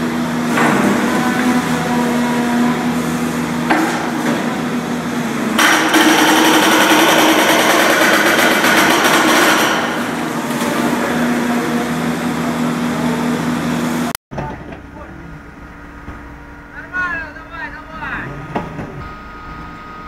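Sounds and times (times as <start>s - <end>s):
excavator engine drone: 0.0s - 20.0s
hydraulic breaker hammering rock: 0.4s - 1.8s, 3.6s - 4.6s, 5.6s - 11.5s.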